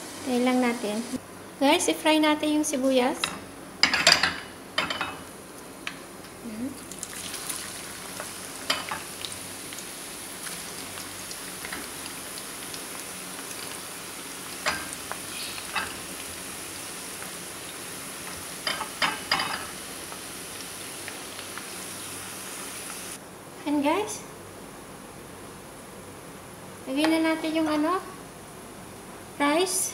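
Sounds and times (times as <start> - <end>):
onions sizzling in oil: 0.0 - 1.2, 6.8 - 23.2.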